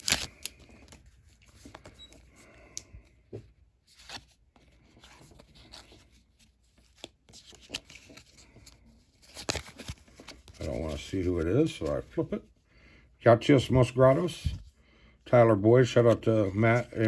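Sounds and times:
trading cards rustling: 0.0 - 3.2, 3.8 - 12.4.

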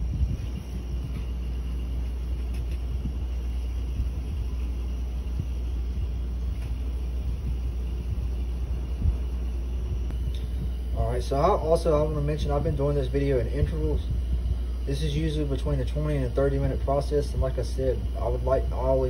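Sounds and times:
refrigerator compressor rumbling: 0.0 - 19.0.

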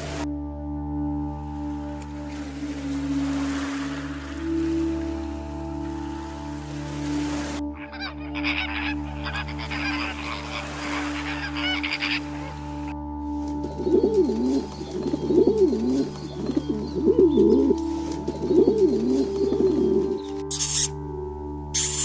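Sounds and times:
background music: 0.0 - 22.0
dove cooing: 7.8 - 12.9, 13.6 - 20.9.

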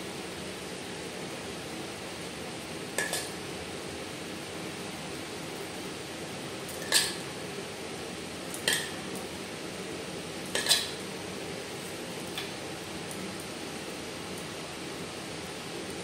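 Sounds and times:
metal spoon clinking on a plate: 10.5 - 11.0.

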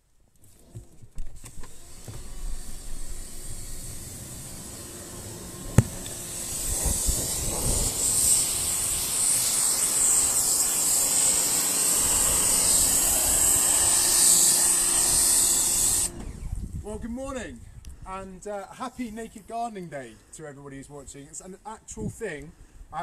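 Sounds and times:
pressure washer jet spraying: 1.7 - 16.1.

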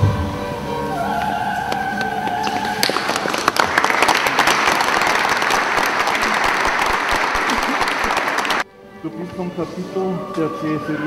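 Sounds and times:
audience applauding: 2.3 - 8.6.

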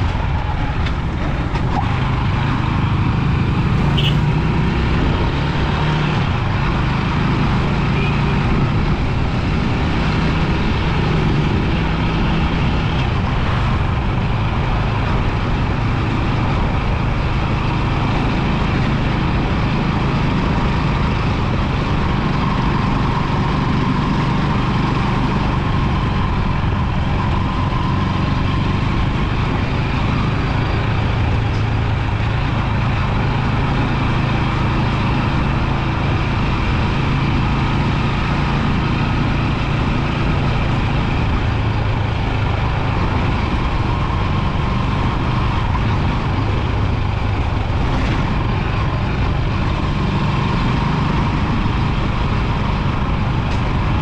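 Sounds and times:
motorbike engine running: 0.0 - 5.2
wind and road noise: 0.0 - 54.0.

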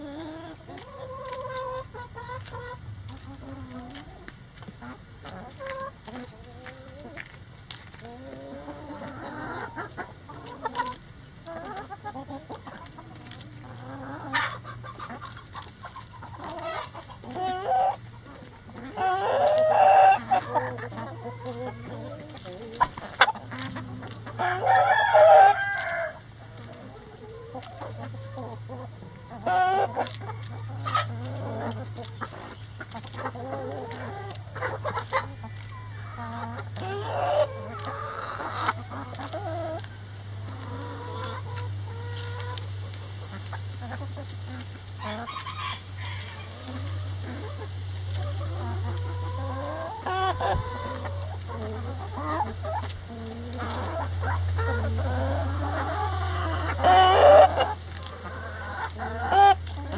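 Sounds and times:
hens clucking: 0.0 - 59.9
steady low hum: 0.0 - 59.9
rooster crowing: 24.4 - 26.3, 35.2 - 37.6, 45.0 - 46.7.

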